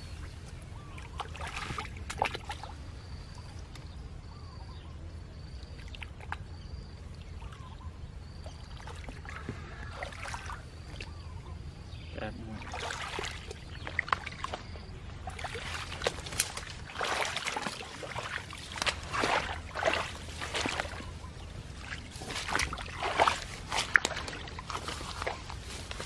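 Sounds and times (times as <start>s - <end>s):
footsteps splashing through water: 1.0s - 2.8s, 12.6s - 26.0s.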